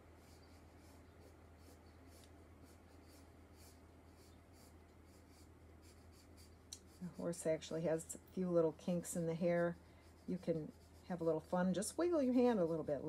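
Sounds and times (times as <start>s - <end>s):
pencil scratching on paper: 0.0s - 13.0s
steady low hum: 0.0s - 13.0s.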